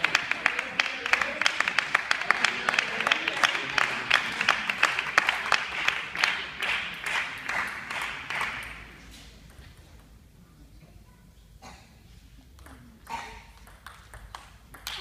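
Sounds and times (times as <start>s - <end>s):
crowd applauding: 0.0s - 8.9s.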